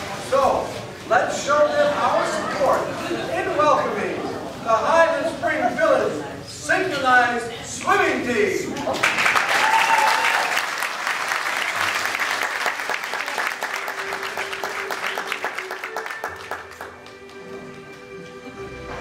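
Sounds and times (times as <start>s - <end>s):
audience applauding: 8.8s - 18.4s.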